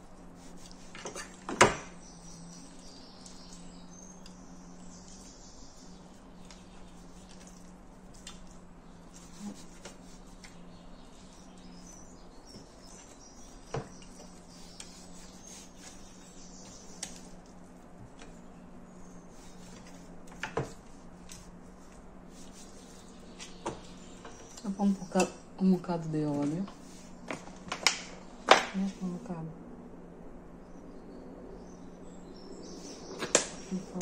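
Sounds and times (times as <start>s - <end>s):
steady low hum: 0.0s - 34.0s
meat rubbed in metal tray: 13.0s - 16.4s.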